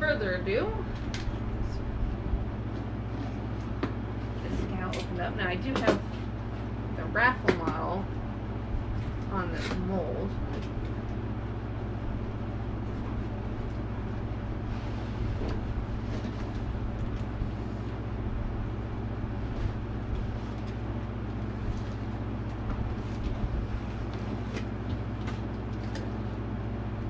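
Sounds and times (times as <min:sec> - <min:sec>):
low hum: 0:00.0 - 0:27.0.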